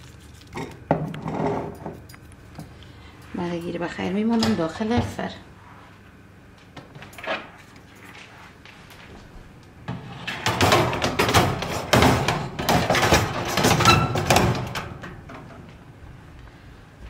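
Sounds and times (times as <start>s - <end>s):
metal tray clattering in oven: 9.9s - 15.3s.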